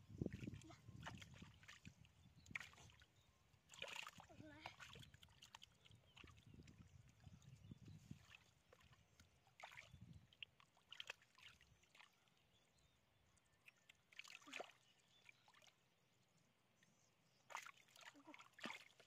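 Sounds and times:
hands splashing in muddy water: 0.3s - 3.0s, 3.7s - 6.8s, 8.1s - 12.2s, 14.1s - 14.8s, 17.5s - 19.0s.

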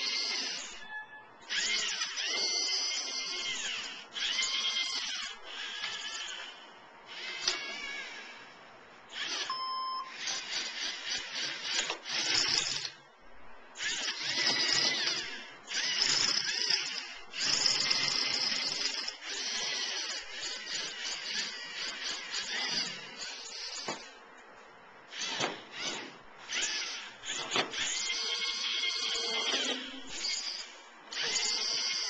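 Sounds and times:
robot servo motors whining: 0.0s - 8.5s, 9.1s - 13.0s, 13.8s - 24.2s, 25.1s - 32.0s
short beep: 9.5s - 10.2s.

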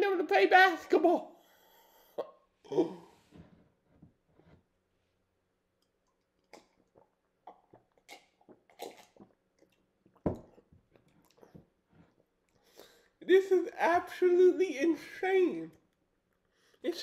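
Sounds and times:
wet mouth and lip clicks: 5.8s - 11.6s
sipping and swallowing: 5.8s - 12.8s.

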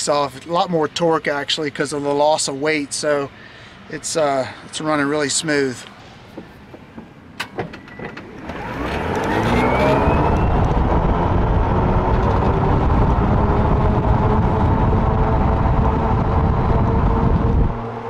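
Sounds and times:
electric motor whine: 8.4s - 18.0s
wind noise on microphone: 8.4s - 18.0s.

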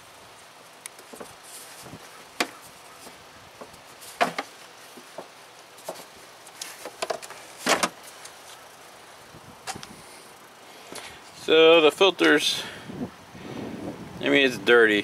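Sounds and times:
plastic clacks and knocks: 4.2s - 4.5s, 6.7s - 8.0s.

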